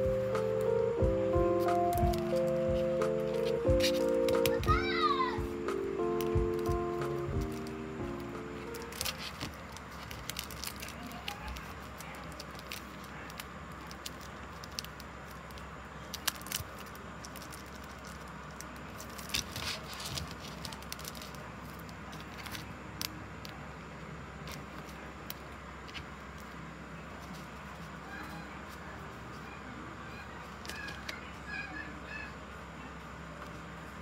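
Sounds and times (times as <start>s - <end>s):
hands handling things: 0.0s - 23.6s
low room hum: 0.0s - 34.0s.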